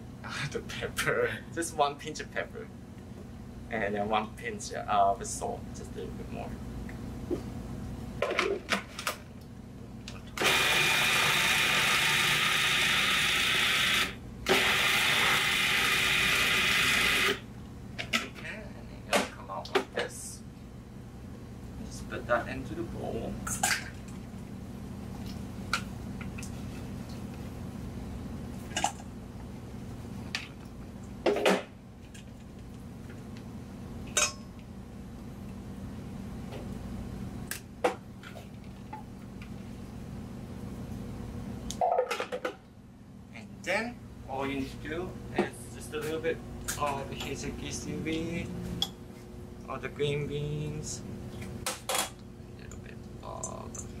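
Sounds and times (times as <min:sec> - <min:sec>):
steady low hum: 0:00.0 - 0:54.0
food processor running: 0:10.4 - 0:17.4.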